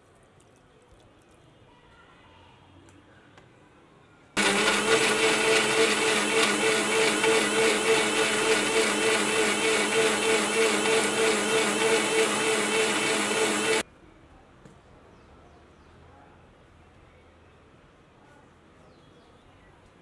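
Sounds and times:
mixer grinder humming: 4.4s - 13.8s.

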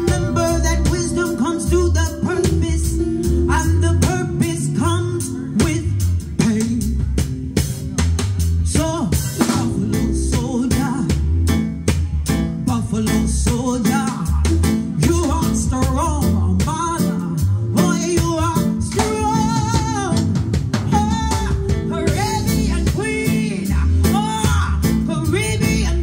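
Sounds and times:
woman singing: 0.0s - 6.9s, 17.8s - 26.0s
band playing reggae groove: 0.0s - 26.0s.

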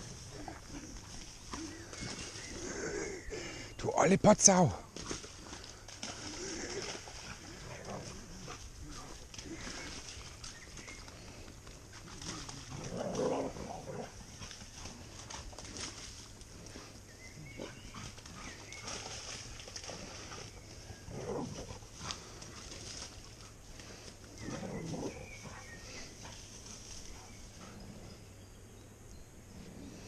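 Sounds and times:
dogs splashing in water: 4.9s - 16.4s, 17.5s - 27.6s.

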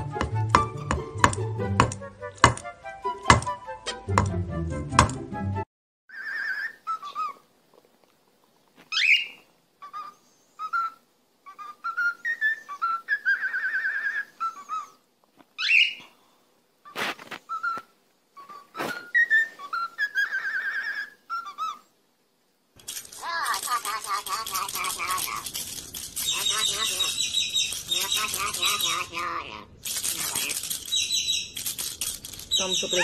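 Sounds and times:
bird whistling a tune: 9.0s - 15.0s, 17.5s - 17.8s, 18.4s - 21.8s, 26.2s - 29.1s, 30.8s - 31.6s, 32.5s - 33.0s.

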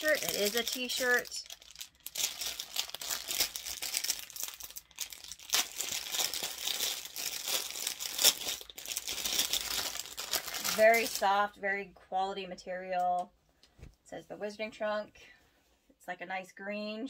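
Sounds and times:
packaging crinkling and rustling: 0.0s - 11.4s.

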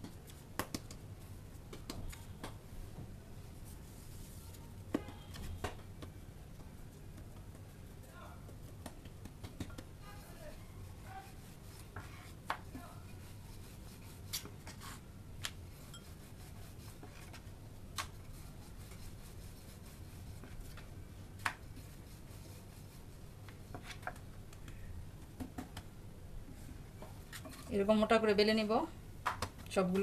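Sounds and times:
dough rubbing and scraping: 3.4s - 5.6s, 6.5s - 24.3s.

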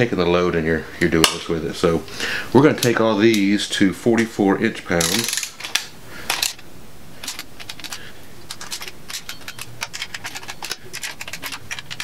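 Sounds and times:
socket ratchet clicking: 5.0s - 12.0s.

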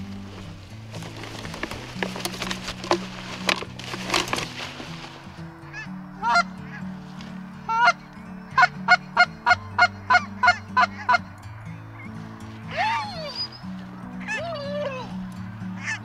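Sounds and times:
rustling noise: 0.0s - 5.8s, 6.8s - 7.7s
background music with low notes: 0.0s - 16.0s
geese calling: 0.0s - 16.0s.

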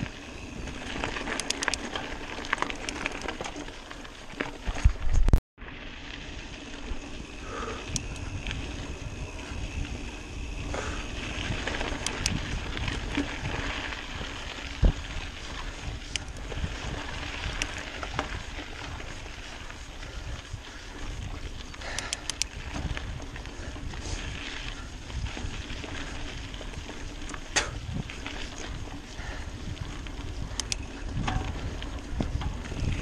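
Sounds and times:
bike knocking and rattling: 0.0s - 33.0s
bike tyres rolling on dirt: 0.0s - 33.0s
wind on microphone: 7.4s - 33.0s.

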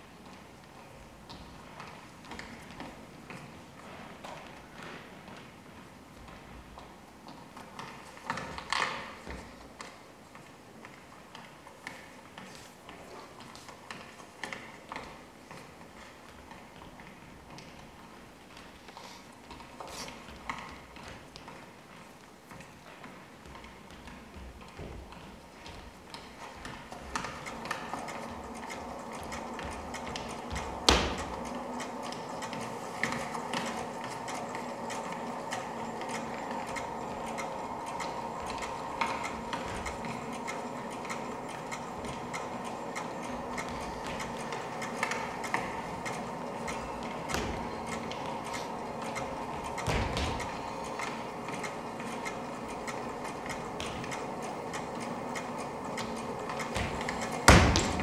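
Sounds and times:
steady hum: 0.0s - 58.0s
dancer's feet on stage floor: 14.5s - 32.3s, 43.3s - 50.6s, 56.7s - 58.0s.

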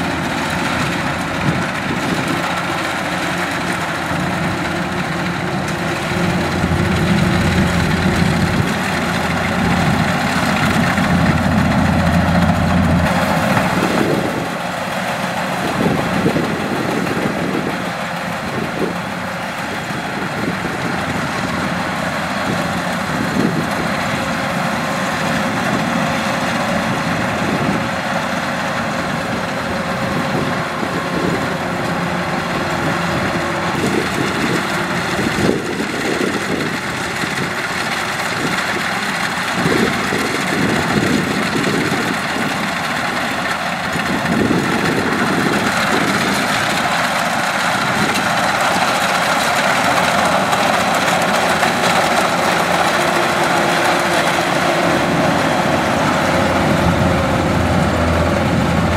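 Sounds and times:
combine harvester running: 0.0s - 58.9s.

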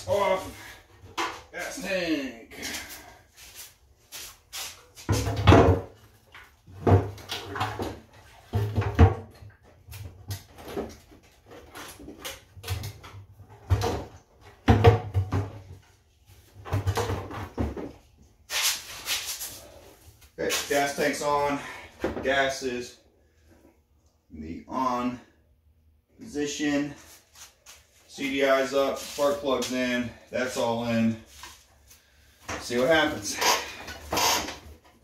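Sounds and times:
knocks and thuds of plastic panels: 5.1s - 6.0s, 12.1s - 15.7s.

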